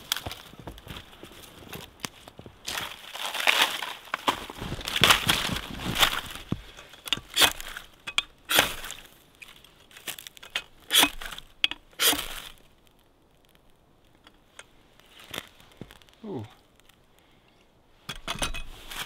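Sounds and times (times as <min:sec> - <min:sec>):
ferro rod scraping rasps: 0:03.3 - 0:07.9, 0:10.3 - 0:12.6.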